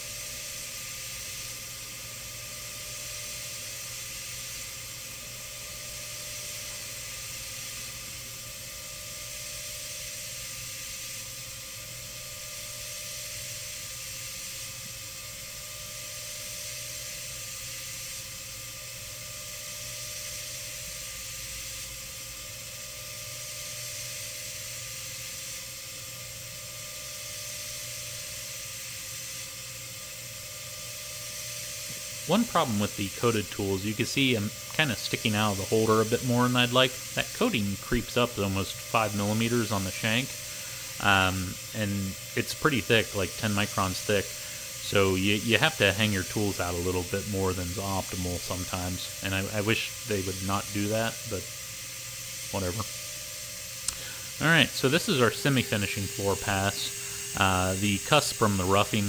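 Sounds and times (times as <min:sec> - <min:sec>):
faint spindle whine: 0:00.0 - 0:59.0
hiss of air mist blast: 0:00.0 - 0:59.0
milling spindle cutting: 0:00.1 - 0:59.0.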